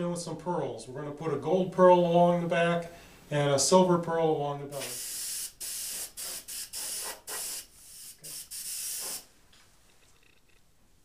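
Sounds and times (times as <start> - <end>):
airbrush spraying in short bursts: 4.8 - 9.3.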